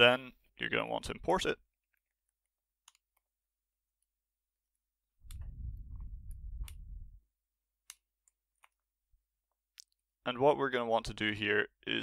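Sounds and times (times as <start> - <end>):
low muffled rumble: 5.3 - 7.2.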